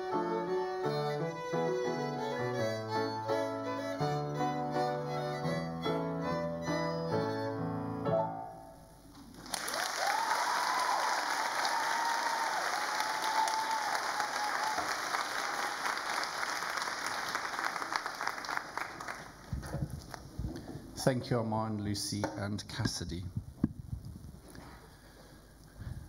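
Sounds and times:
violins and piano music: 0.0 - 8.5
audience clapping: 9.2 - 20.2
high cheer: 9.5 - 18.6.

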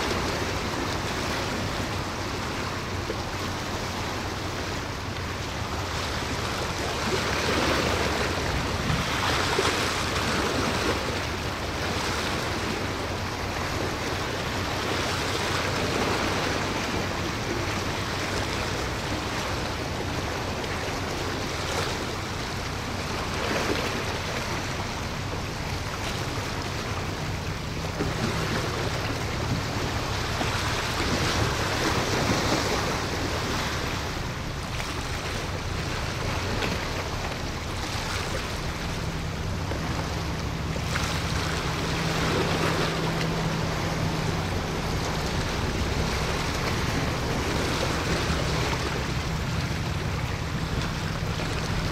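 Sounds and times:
boat engine drone: 0.0 - 51.9
waves washing: 0.0 - 51.9
wind on microphone: 7.1 - 11.9.

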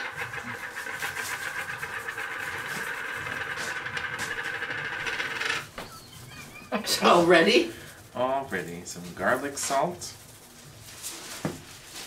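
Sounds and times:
bread maker motor whirring: 0.0 - 5.7.

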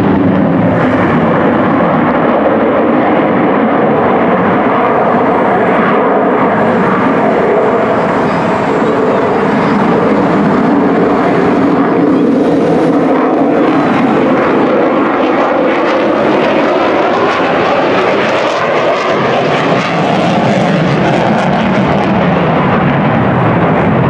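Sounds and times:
jet roar overhead: 0.0 - 24.0.

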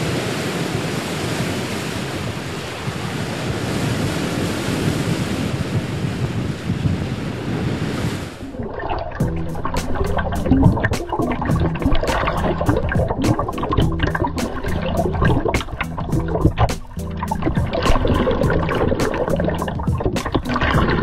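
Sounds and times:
wind: 0.0 - 9.3
ocean waves and surf: 0.0 - 21.0
music with a steady beat: 9.2 - 21.0.

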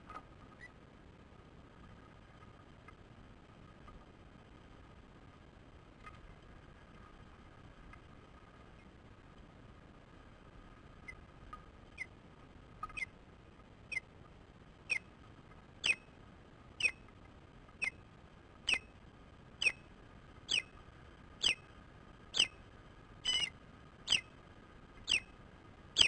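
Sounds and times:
bird whistled chirps: 15.8 - 16.0, 20.5 - 20.7, 22.4 - 22.6, 23.2 - 23.5, 24.1 - 24.3, 25.1 - 25.3.

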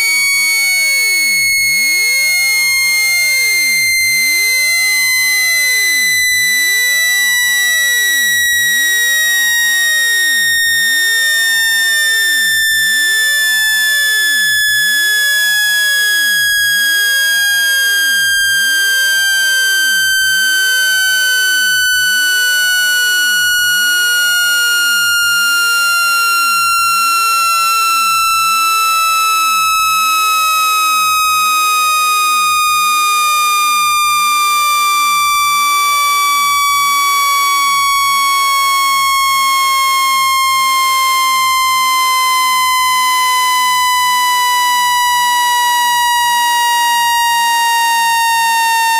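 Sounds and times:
buzzy electronic tone falling: 10.6 - 48.9.

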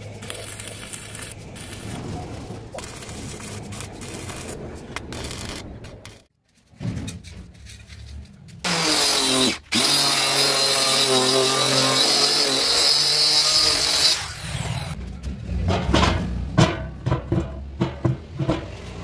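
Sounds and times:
circular saw cutting plywood: 8.6 - 15.0.

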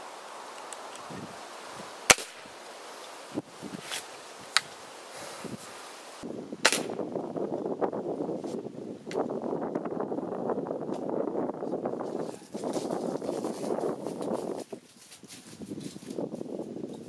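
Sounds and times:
air rifle shot crack: 2.1 - 2.5, 6.6 - 7.0.

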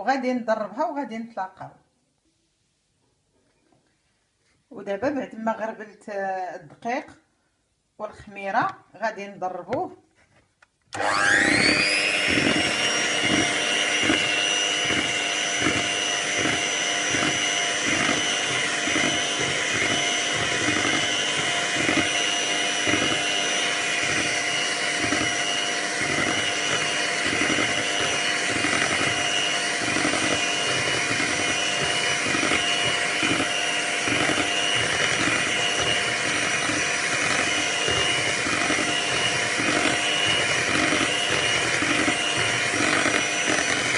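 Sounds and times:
electric hand mixer whining: 10.9 - 43.9.

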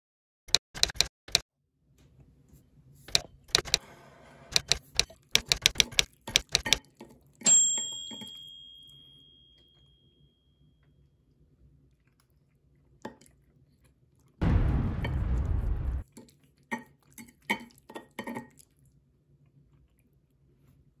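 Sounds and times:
typewriter key clacks: 0.8 - 1.4, 3.1 - 3.8, 4.6 - 6.8
typewriter carriage bell ding: 7.5 - 10.1.

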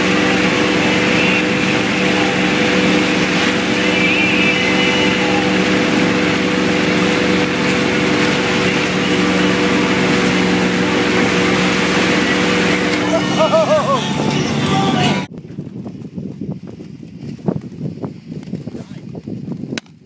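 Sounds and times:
boat engine hum: 0.0 - 15.3
rush of churning wake: 0.0 - 15.3.

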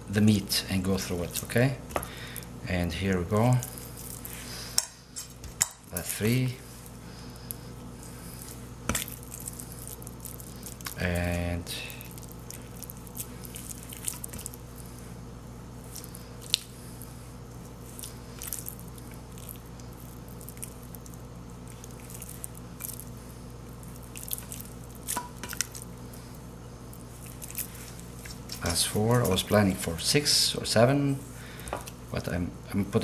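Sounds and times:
wet squishing of raw chicken: 12.0 - 14.7, 15.8 - 26.3, 26.9 - 29.4.

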